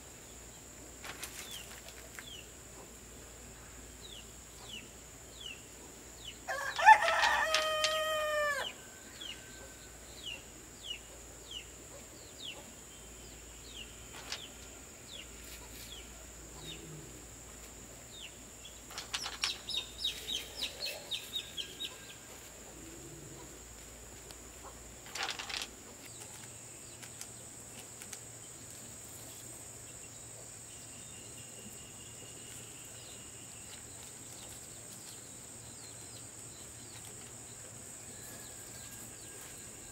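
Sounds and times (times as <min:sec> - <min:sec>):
small birds chirping: 0:00.3 - 0:17.0, 0:17.6 - 0:23.6, 0:24.6 - 0:39.9
rooster crowing: 0:06.5 - 0:09.8.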